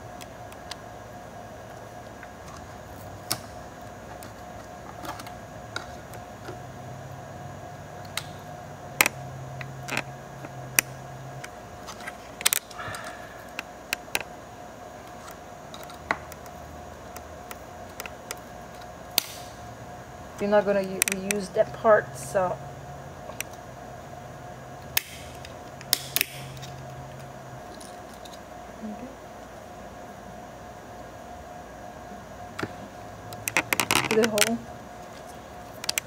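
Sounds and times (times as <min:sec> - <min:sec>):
steady hum: 0:00.0 - 0:36.0
hard plastic clicks and snaps: 0:24.8 - 0:26.7.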